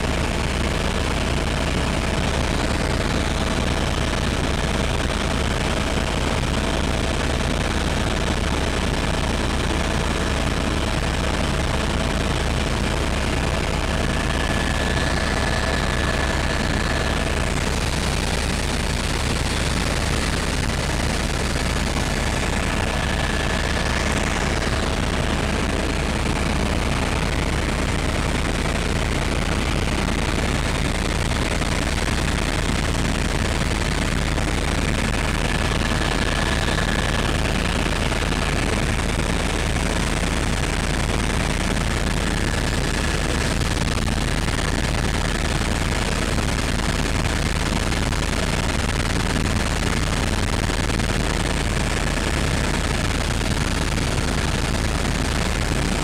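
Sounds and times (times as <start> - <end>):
helicopter rotor and engine din: 0.0 - 56.0
rapid rotor chop: 11.9 - 27.3, 30.4 - 55.1.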